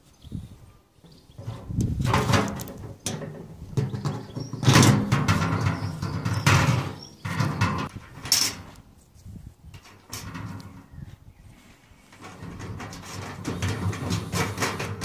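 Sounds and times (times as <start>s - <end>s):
metal drum scraping and knocking: 1.1s - 8.7s, 9.8s - 11.0s, 12.1s - 15.0s.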